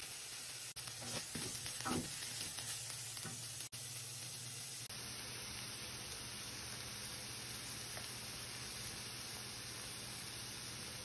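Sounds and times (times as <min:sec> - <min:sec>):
vegetables sizzling in oil: 0:00.0 - 0:11.0
spatula stirring: 0:00.8 - 0:03.6.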